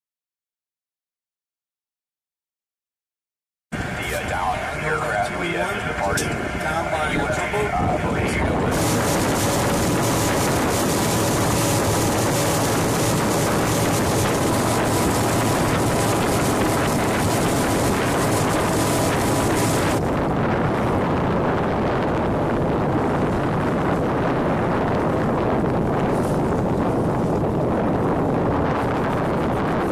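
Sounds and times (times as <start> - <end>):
boat engine running: 3.8 - 29.9
rush of wind and water: 3.8 - 29.9.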